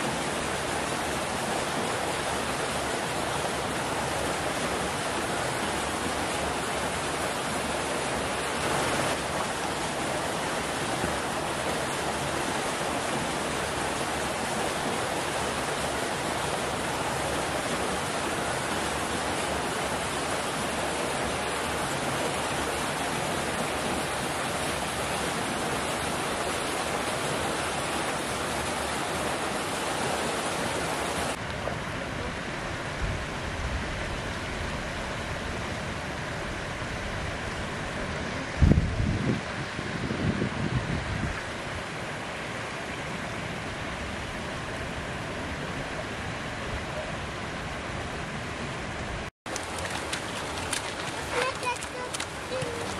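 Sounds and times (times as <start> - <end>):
wind gusts on microphone: 32.5 - 42.3
water pouring from a pipe: 49.5 - 52.9.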